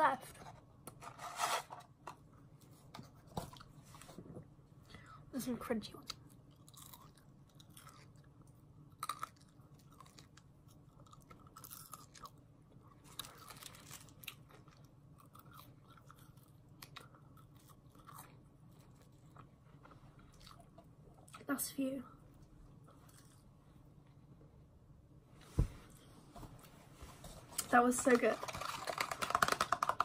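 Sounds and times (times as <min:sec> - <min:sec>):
low steady hum: 0:00.0 - 0:30.0
chewing crisp fries: 0:06.0 - 0:21.5.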